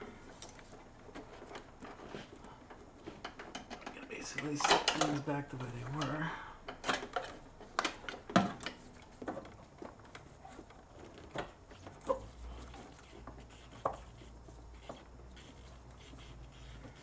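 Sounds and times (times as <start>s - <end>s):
light clicks and knocks: 0.4s - 12.0s.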